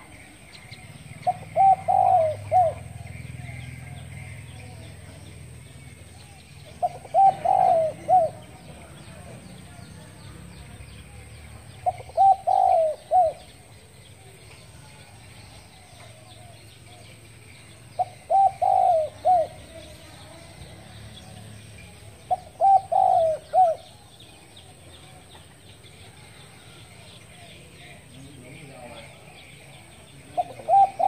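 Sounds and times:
dove cooing: 0.0 - 9.8, 10.6 - 14.4, 15.7 - 20.9, 21.9 - 25.2, 27.3 - 31.0
faint bird chirping: 0.0 - 31.0.

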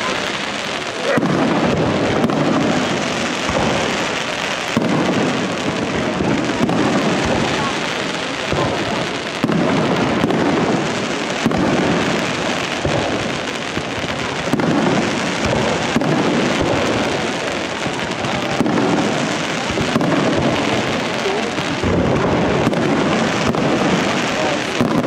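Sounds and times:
fireworks crackling: 0.0 - 25.0
sharp firework bangs: 0.0 - 25.0.

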